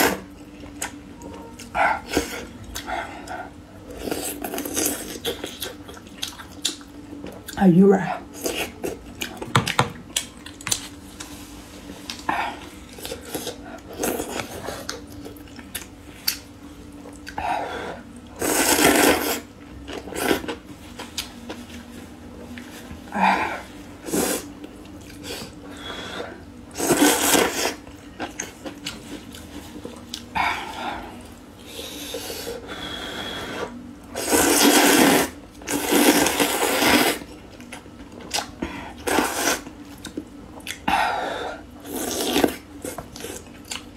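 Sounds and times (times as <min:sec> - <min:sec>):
chewing and mouth clicks: 0:39.9 - 0:40.8, 0:43.0 - 0:43.9.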